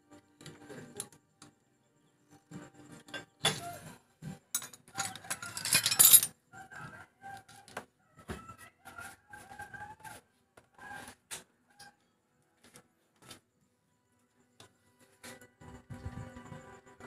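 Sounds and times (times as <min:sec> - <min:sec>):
metal tools clinking and rattling: 0:04.5 - 0:06.3.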